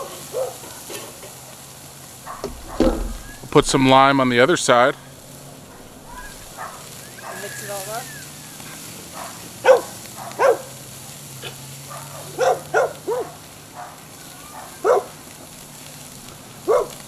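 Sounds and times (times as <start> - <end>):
dog barking: 0.0 - 0.8, 2.2 - 3.4, 5.6 - 8.0, 9.1 - 10.8, 11.4 - 15.2, 16.6 - 17.0
meat searing on a grill: 0.0 - 17.0.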